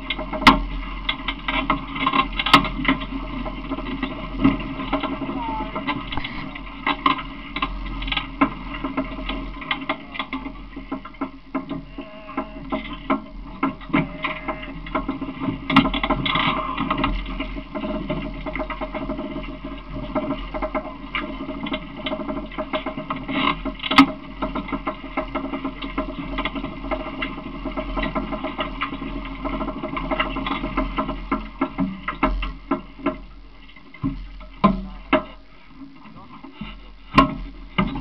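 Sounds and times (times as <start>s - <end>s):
cart rattling and knocking: 0.0s - 33.4s
short clicks and bumps: 0.2s - 38.0s.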